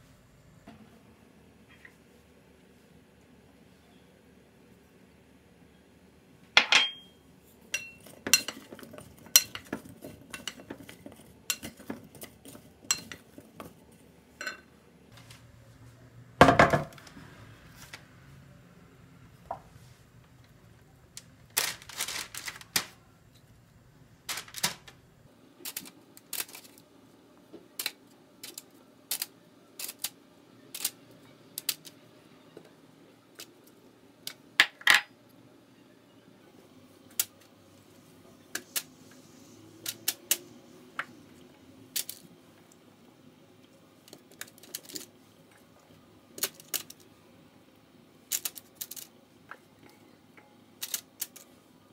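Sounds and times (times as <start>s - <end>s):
glass and ceramic kitchenware clinking: 6.6s - 10.9s, 14.4s - 14.7s.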